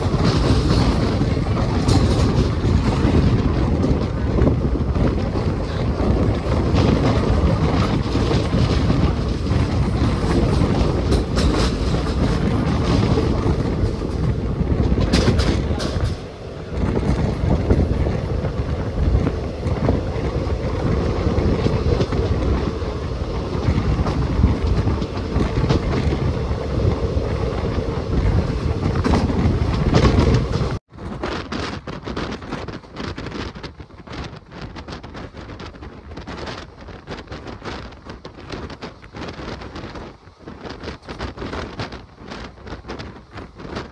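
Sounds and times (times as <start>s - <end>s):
rushing air: 0.0s - 43.9s
train wheels rumbling on rail: 0.0s - 43.9s.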